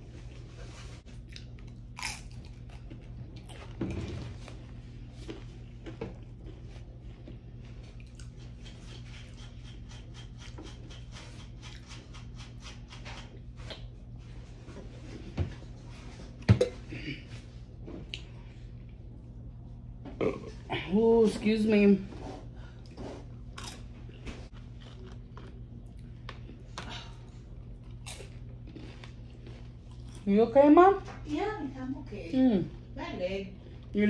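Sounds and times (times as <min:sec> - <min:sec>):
chewing and crunching chips: 0:01.1 - 0:13.9, 0:22.8 - 0:31.2, 0:32.6 - 0:34.0.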